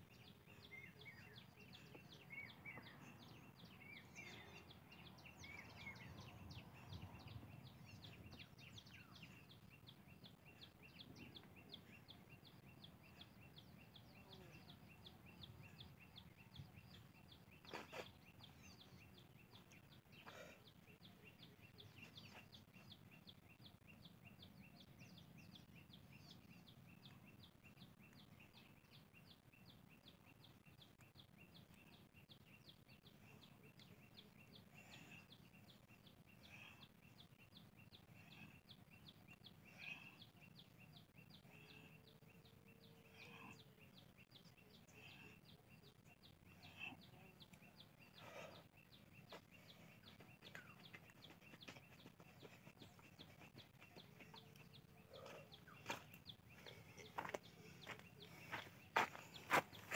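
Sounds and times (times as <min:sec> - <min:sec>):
distant bird calls: 0:00.0 - 0:59.9
footsteps on grass: 0:55.8 - 0:59.9.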